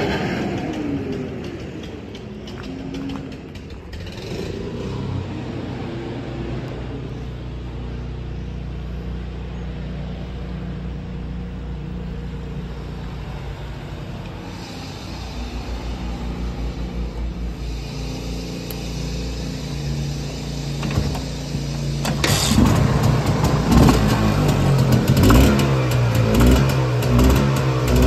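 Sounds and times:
two-stroke motorcycle engine idling: 0.0 - 28.0.

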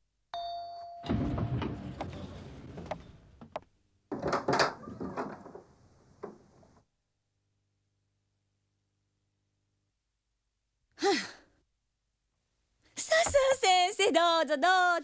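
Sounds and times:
elevator arrival chime: 0.4 - 1.5
elevator doors sliding: 1.0 - 6.8.

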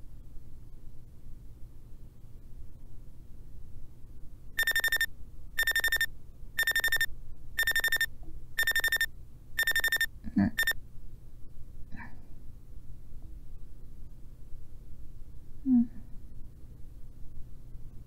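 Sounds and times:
phone alarm rapid beeps: 4.6 - 10.8.

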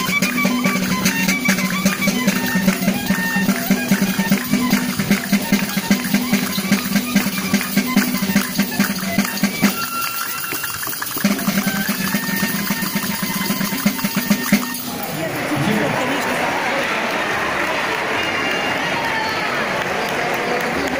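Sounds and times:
frame drums beating: 0.0 - 15.4
folk melody: 0.0 - 16.0.

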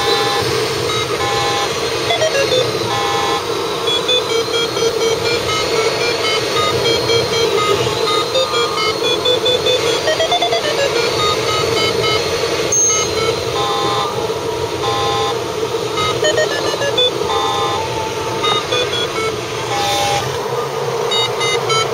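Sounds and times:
short electronic beeps: 0.0 - 14.1, 16.0 - 17.8, 18.4 - 20.2, 21.1 - 21.9.

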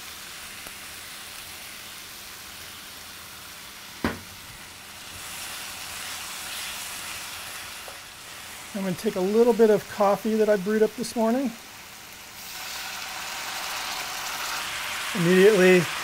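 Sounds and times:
food sizzling in a skillet: 0.0 - 16.0
sharp knock: 4.0 - 4.4.

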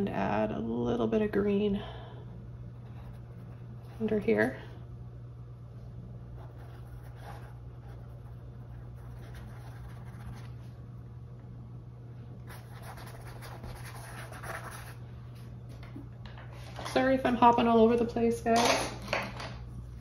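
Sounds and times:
steady low hum: 0.0 - 20.0
paintbrush scratching on canvas: 12.5 - 15.0.

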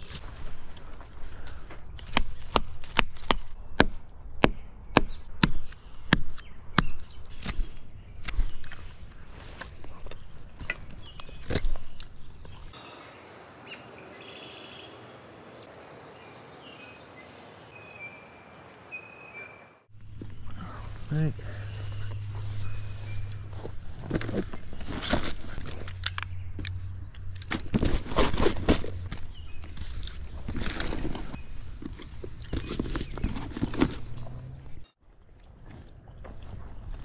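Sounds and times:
small birds chirping: 4.4 - 27.3, 29.0 - 35.0.

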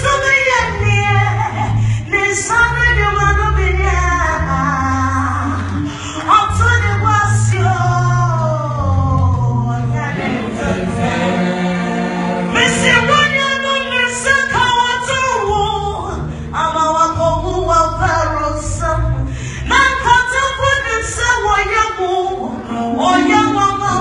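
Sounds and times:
steady bass line: 0.0 - 24.0
church band playing: 7.6 - 21.4, 22.3 - 24.0
person singing into microphone: 19.7 - 24.0.

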